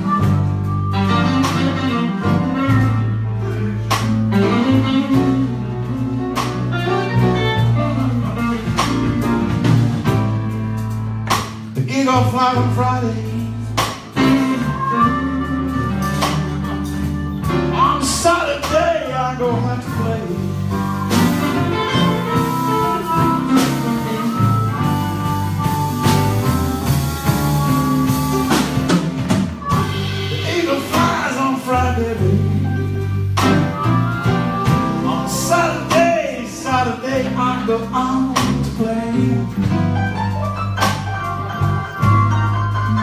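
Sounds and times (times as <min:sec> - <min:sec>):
electric guitars: 0:00.0 - 0:11.7, 0:12.4 - 0:43.0
drum kit slow beat: 0:00.0 - 0:43.0.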